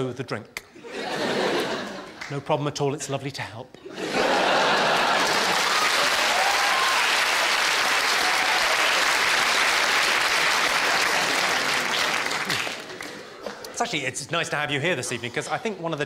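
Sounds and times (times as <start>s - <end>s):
audience applauding: 4.3s - 13.4s.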